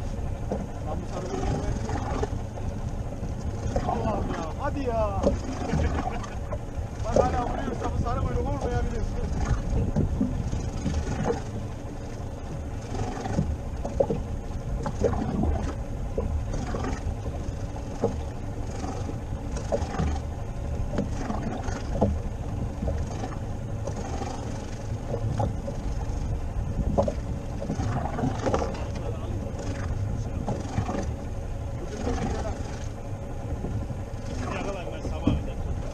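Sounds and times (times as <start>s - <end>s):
sea and wind rumble: 0.0s - 35.9s
short knocks and clicks: 26.8s - 29.1s.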